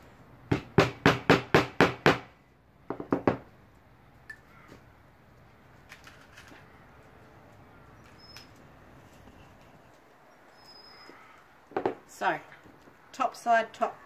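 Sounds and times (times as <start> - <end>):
hammer hitting nail into wood: 0.5 - 2.3.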